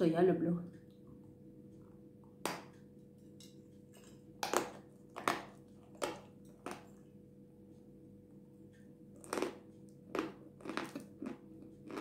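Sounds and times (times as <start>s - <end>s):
faint steady hum: 0.0s - 12.0s
crunchy chewing: 9.2s - 12.0s.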